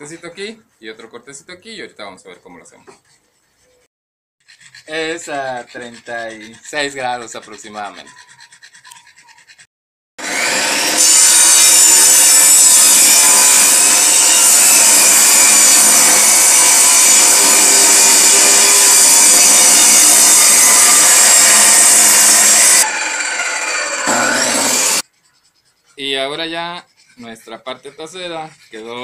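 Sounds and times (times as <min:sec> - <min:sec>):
table saw cutting wood: 0:10.2 - 0:25.0.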